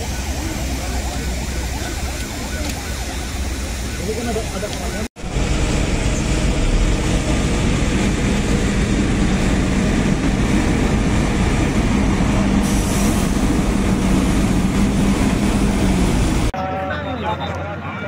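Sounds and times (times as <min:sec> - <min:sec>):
engine rumbling: 0:00.0 - 0:16.6.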